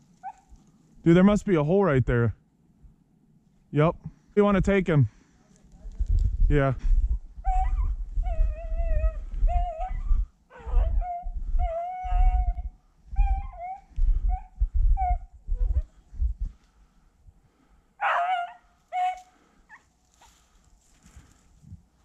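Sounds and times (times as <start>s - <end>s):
dog baying and yelping: 0.2s - 0.6s, 7.4s - 15.9s, 18.0s - 20.3s
low rumbling: 5.9s - 17.8s.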